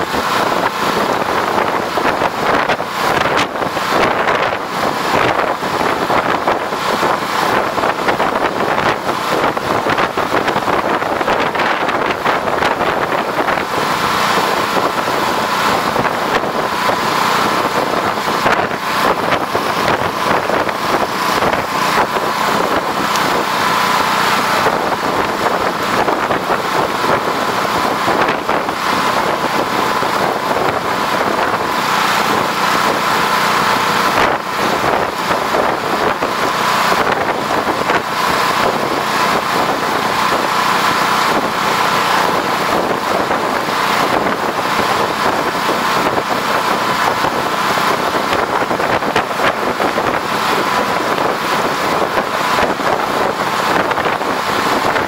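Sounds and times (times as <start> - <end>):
engine hum: 0.0 - 55.0
wind rushing over microphone: 0.0 - 55.0.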